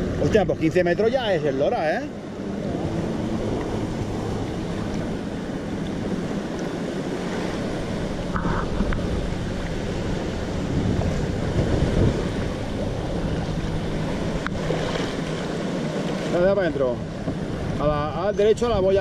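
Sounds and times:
choppy sea water washing: 0.0 - 19.0
wind noise on microphone: 7.0 - 15.4.

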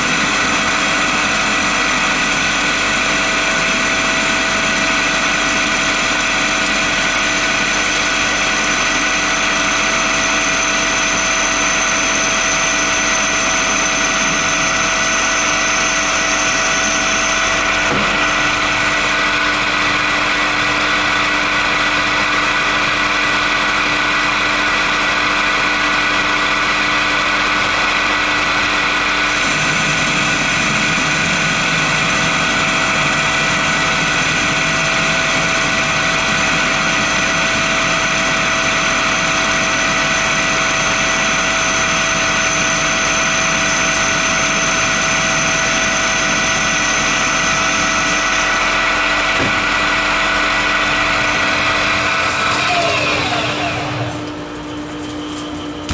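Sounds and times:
metal lathe humming: 0.0 - 22.2, 25.6 - 54.7.

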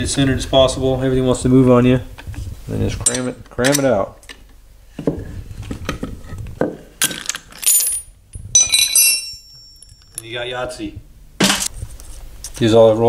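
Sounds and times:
metallic clinking of falling bearings: 7.0 - 10.4.

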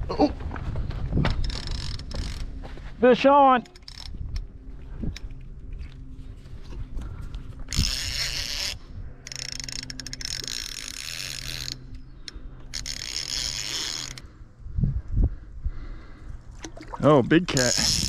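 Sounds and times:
fishing reel ratchet clicking: 1.4 - 2.5, 3.7 - 4.2, 7.7 - 14.3, 17.6 - 18.0.

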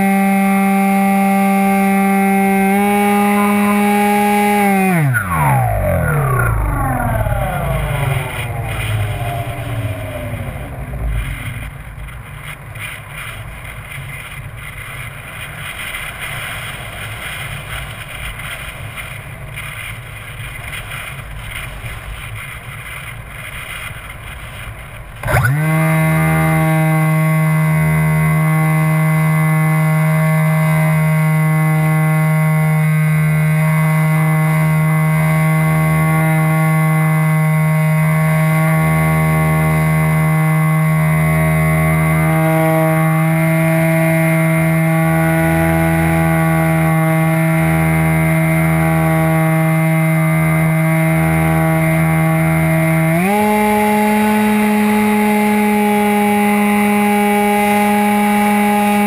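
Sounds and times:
model plane motor whine: 0.0 - 59.0
wind buffeting microphone: 5.0 - 26.6.

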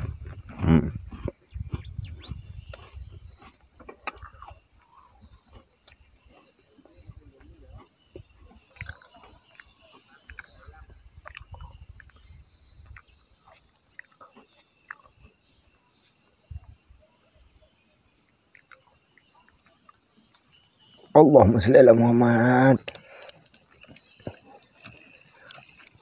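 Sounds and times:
short chirps and ticks: 8.6 - 15.3, 18.5 - 20.5
high-pitched insect drone: 20.3 - 26.0.

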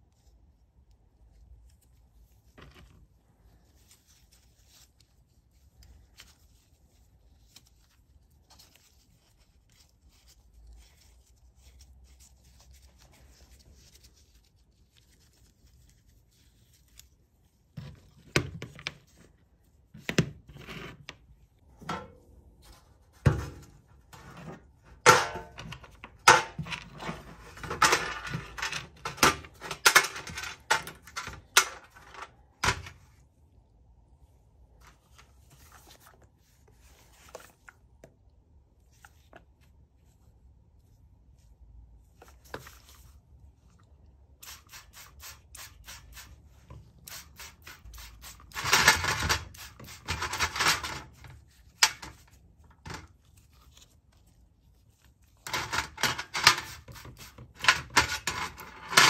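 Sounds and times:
faint handling noise: 0.0 - 44.4.

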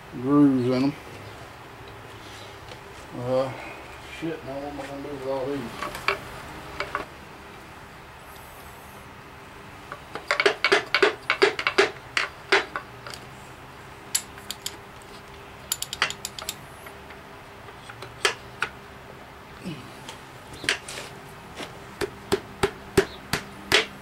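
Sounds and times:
hammer tapping on metal: 22.0 - 24.0.

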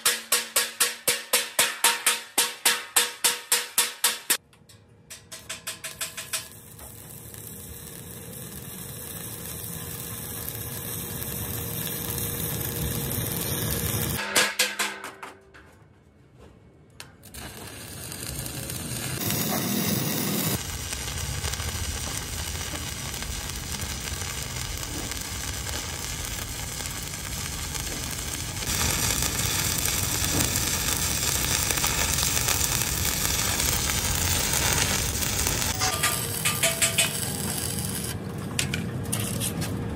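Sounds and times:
arc welding crackling: 5.4 - 14.2, 17.1 - 39.8.

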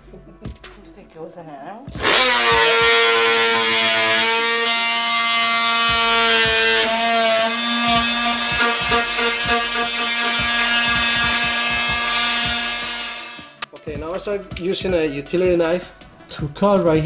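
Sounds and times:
oscillating tool cutting wood: 2.0 - 13.7.

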